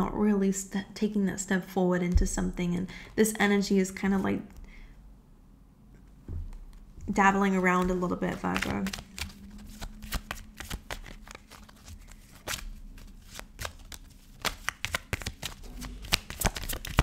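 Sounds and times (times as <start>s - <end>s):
cards being shuffled by hand: 6.5s - 17.0s.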